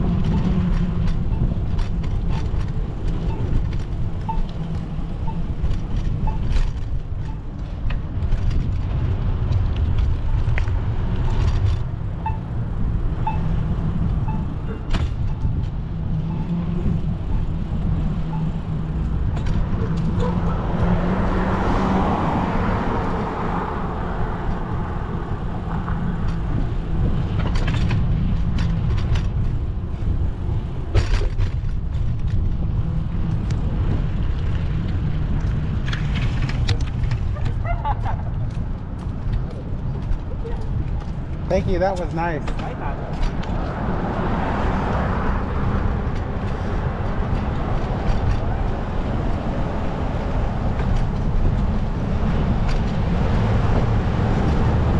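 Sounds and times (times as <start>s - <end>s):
city street traffic: 0.0s - 54.9s
motor vehicle passing: 15.5s - 27.4s, 32.5s - 54.9s.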